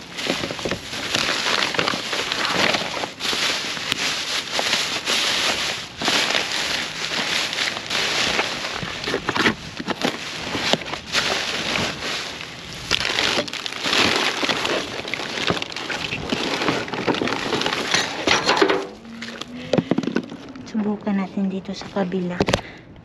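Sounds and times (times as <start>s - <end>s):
bags and cardboard rustling: 0.0s - 22.8s.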